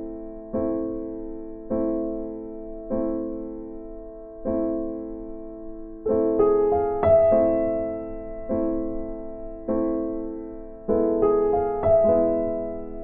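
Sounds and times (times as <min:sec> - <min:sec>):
slow piano chords: 0:00.0 - 0:13.0.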